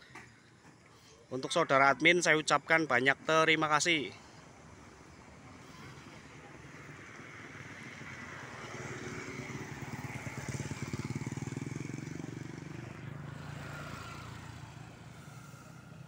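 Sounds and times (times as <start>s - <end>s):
vehicle engine running: 5.0s - 16.0s.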